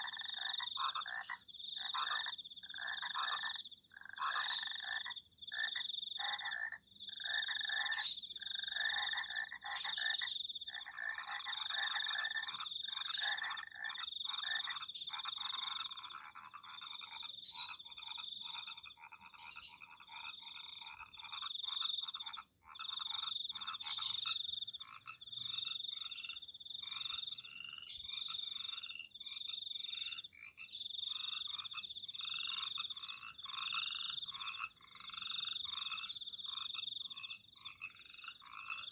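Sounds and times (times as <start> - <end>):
frogs croaking: 0.0 - 38.9.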